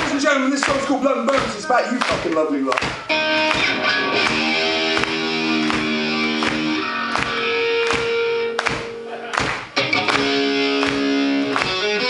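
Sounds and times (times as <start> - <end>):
electric guitar chords: 3.0 - 12.0.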